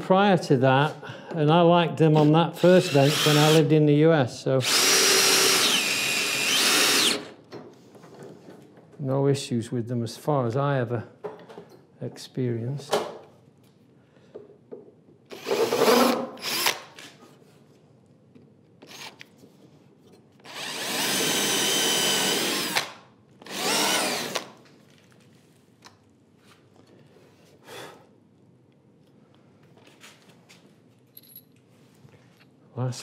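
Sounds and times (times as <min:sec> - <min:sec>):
cordless drill drilling into wood: 0:02.2 - 0:03.6, 0:04.6 - 0:07.4, 0:15.3 - 0:17.0, 0:20.4 - 0:24.6.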